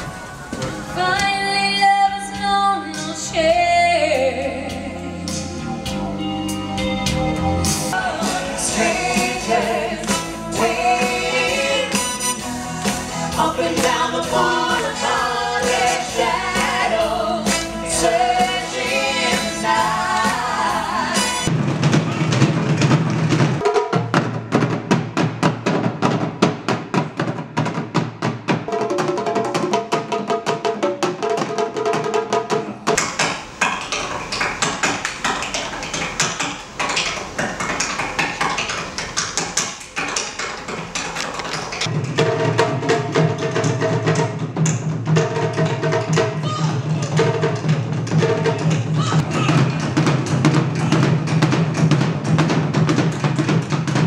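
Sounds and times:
fast drum hits: 7.9 - 54.0
singer with a band: 8.0 - 21.5, 48.9 - 49.8.

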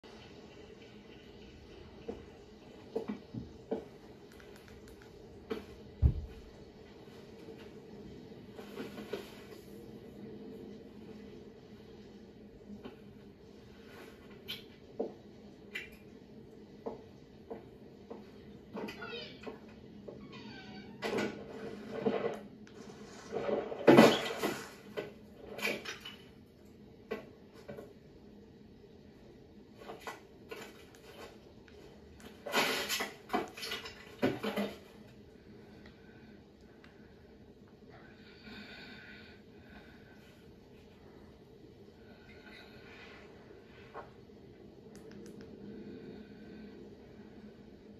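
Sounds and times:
faint steady hum: 0.0 - 47.9
clattering and rustling from tv speaker: 21.0 - 26.4, 29.7 - 35.2.

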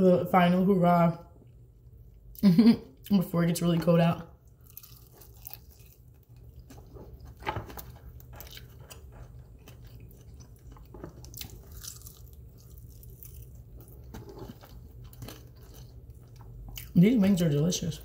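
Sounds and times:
low steady hum: 0.0 - 18.0
person chewing: 4.4 - 17.0.

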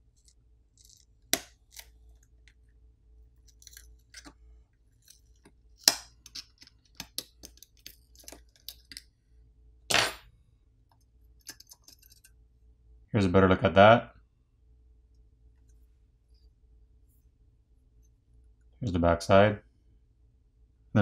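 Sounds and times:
metal pry tool clicking and scraping: 11.4 - 12.3.

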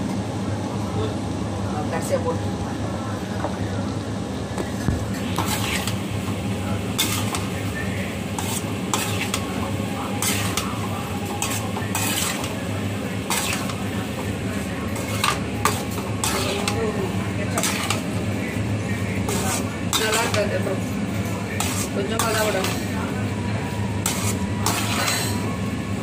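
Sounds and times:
metal spoon scraping pan: 5.4 - 6.0, 6.9 - 7.6, 8.3 - 14.0, 14.9 - 18.2, 19.2 - 20.6, 21.6 - 22.9, 24.0 - 25.5.

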